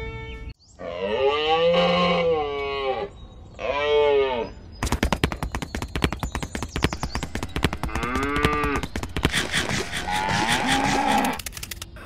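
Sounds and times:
rattling run of sharp clicks: 4.8 - 12.0.

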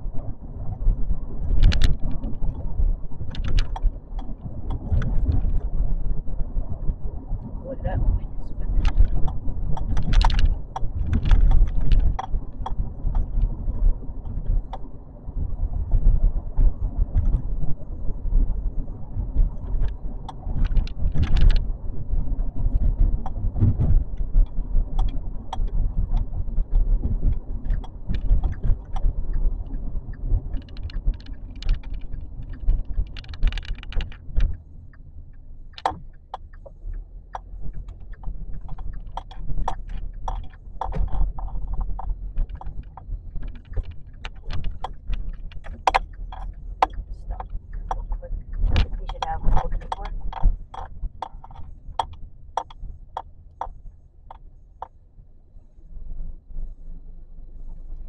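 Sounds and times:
car road and engine rumble: 0.0 - 58.0
small clicks and rattles: 0.1 - 55.0.

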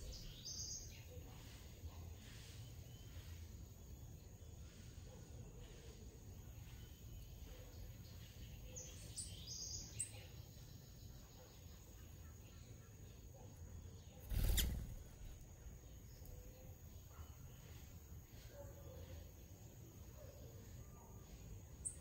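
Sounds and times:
faint low outdoor rumble: 0.0 - 22.0
bird giving high thin chirps: 14.2 - 15.4.

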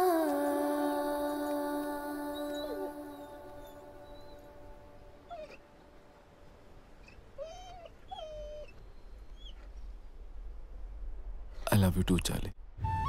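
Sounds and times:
dog whimpering: 2.2 - 4.6, 5.3 - 5.6, 7.0 - 9.7.

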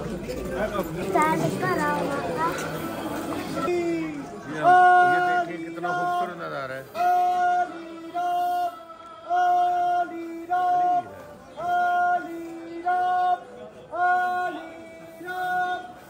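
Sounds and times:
person singing steady notes: 3.6 - 16.0.

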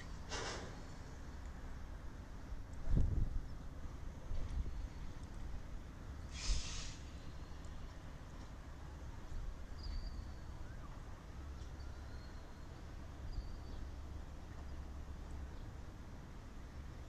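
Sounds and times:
low wind rumble: 0.0 - 17.0
short hiss: 0.3 - 0.9, 6.3 - 7.2.

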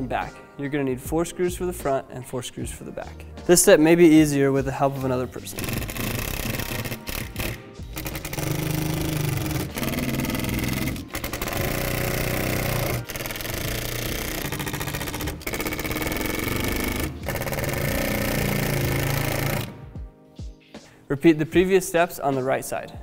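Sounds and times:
cordless drill driving screws: 4.9 - 19.8.

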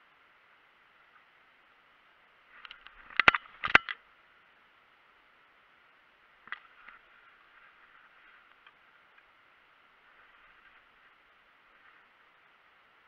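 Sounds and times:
rustling of grass and clothing: 0.0 - 13.0.

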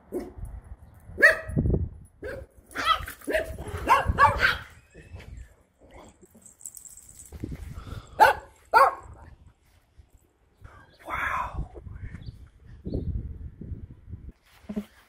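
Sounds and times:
dog barking: 1.2 - 1.6, 2.2 - 4.7, 8.2 - 9.2.

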